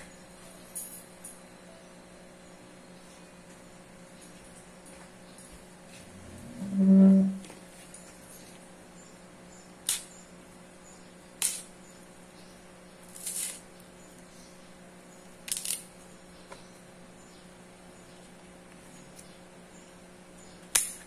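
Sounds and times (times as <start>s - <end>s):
loud humming tone: 5.9s - 7.6s
leaf stalks snapping: 9.8s - 10.1s, 11.4s - 11.7s, 15.5s - 15.9s.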